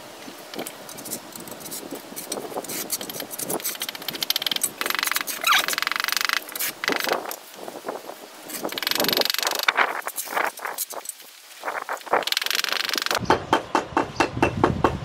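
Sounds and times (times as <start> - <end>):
trowel scraping and tapping mortar: 0.5 - 5.5
rapid rasping scrape: 0.6 - 7.3, 8.4 - 13.2.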